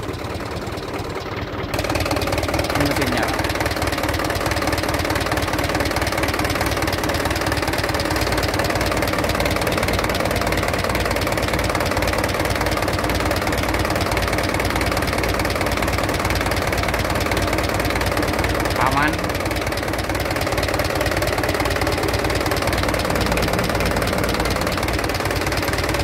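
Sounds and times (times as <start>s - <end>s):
diesel engine idling: 0.0s - 26.0s.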